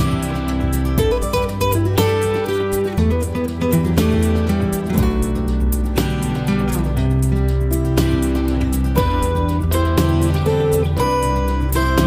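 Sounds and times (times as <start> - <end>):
strummed guitar music with beat: 0.0 - 12.0.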